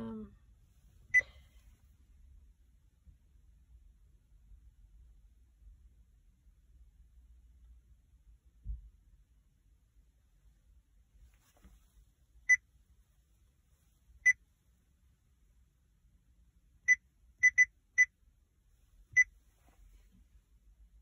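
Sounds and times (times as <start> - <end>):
touchscreen beeps: 16.9 - 17.7.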